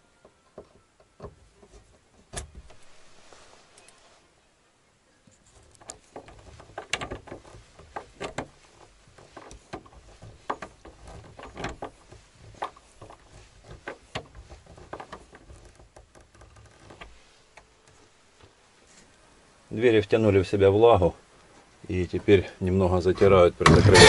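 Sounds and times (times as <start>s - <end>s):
hand tools clicking and knocking: 5.7s - 17.2s.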